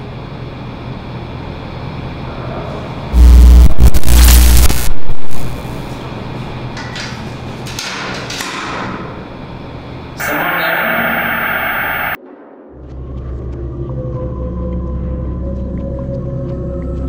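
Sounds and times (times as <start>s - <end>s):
harsh electronic static buzz: 3.1s - 6.0s, 10.2s - 12.2s
noisy crackling static: 3.1s - 6.0s, 10.2s - 12.2s
glitch noise burst: 3.2s - 5.9s, 10.2s - 12.2s.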